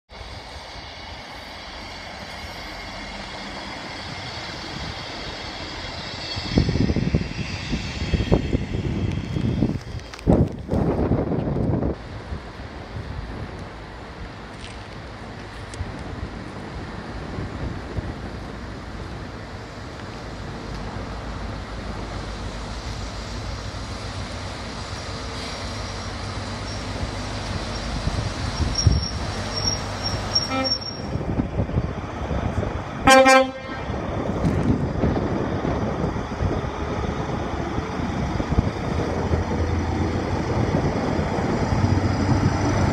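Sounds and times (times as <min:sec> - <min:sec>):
diesel train engine rumble: 0:00.1 - 0:42.9
brief high squeal: 0:28.6 - 0:31.2
train horn toot: 0:30.4 - 0:31.2, 0:33.0 - 0:34.0.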